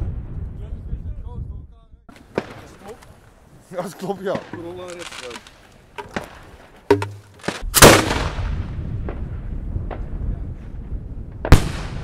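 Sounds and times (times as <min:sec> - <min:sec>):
mortar bang: 0:06.9 - 0:08.6.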